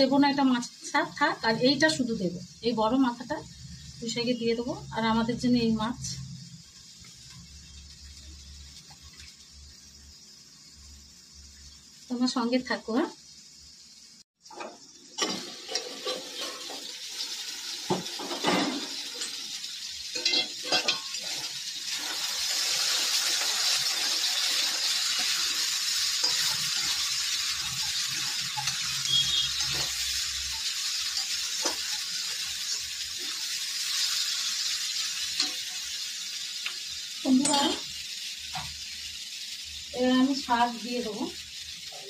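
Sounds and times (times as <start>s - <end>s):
vegetables sizzling in oil: 0.0s - 42.0s
metal utensils clinking: 14.5s - 17.0s, 18.0s - 33.4s
metal spatula scraping a pan: 14.5s - 34.6s.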